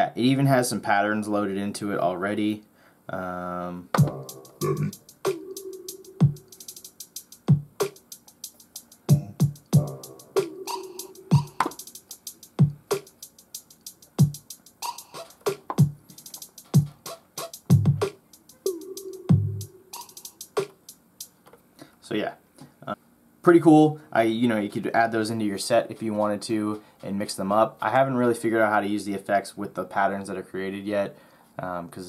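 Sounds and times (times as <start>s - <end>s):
held bass synth tone: 4.0s - 5.0s
electronic kick drums: 4.0s - 5.4s, 6.2s - 6.5s, 7.4s - 8.0s, 9.1s - 13.1s, 14.2s - 14.5s, 15.3s - 18.2s, 19.3s - 19.7s
hi-hat rolls: 4.0s - 21.4s.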